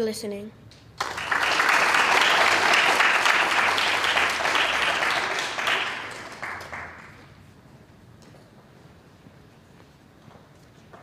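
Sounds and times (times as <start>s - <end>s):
audience applauding: 1.0s - 7.4s.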